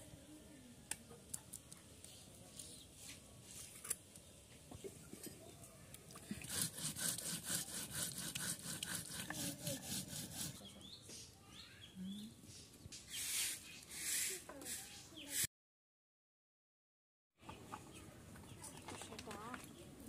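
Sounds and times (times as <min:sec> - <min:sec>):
stone roller scraping grinding stone: 0:06.5 - 0:10.6.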